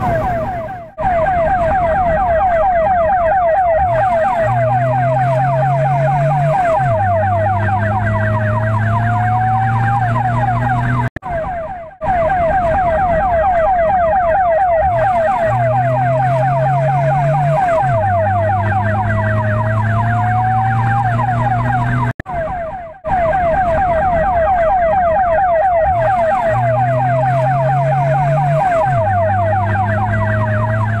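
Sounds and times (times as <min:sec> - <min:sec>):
ambulance siren yelping: 0:00.0 - 0:31.0.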